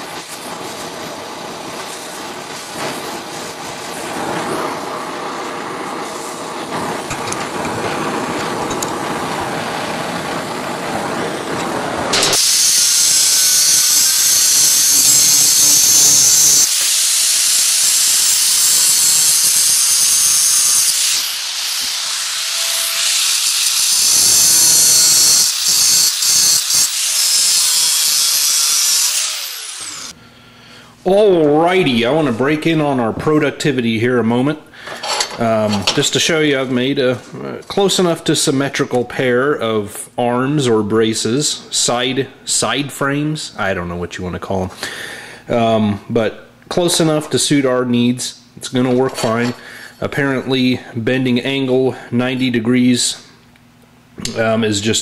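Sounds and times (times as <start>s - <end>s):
torch flame hissing: 0.0s - 30.2s
angle grinder grinding steel: 10.8s - 30.2s.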